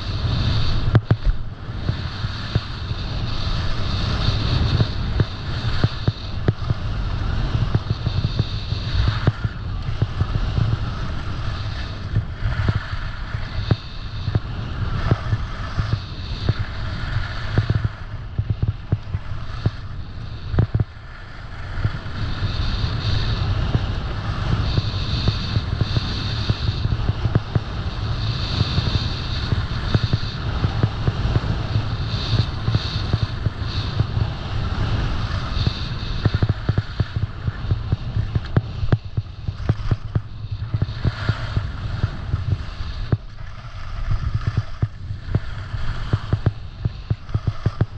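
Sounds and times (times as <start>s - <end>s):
skis scraping over snow: 0.0s - 47.9s
wind rumble on microphone: 0.0s - 47.9s
ski clicks and knocks: 35.2s - 47.9s.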